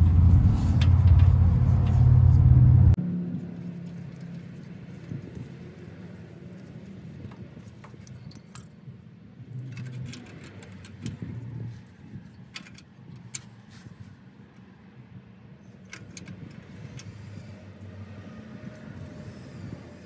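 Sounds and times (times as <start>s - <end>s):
steady low hum: 0.0s - 3.6s.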